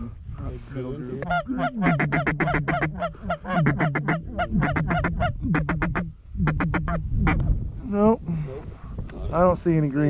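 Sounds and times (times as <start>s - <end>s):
duck call honking notes: 1.2s - 7.0s.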